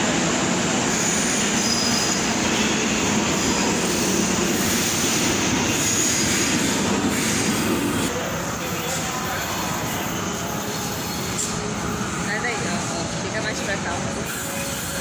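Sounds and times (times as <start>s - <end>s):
train wheels rumbling on rail: 0.0s - 15.0s
faint high wheel squeals: 1.0s - 2.8s, 8.2s - 12.3s.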